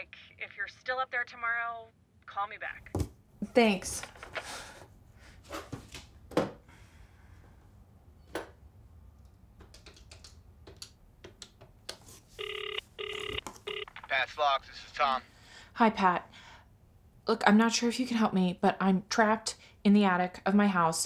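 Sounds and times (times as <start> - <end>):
telephone ringing tone: 12.4 - 13.9.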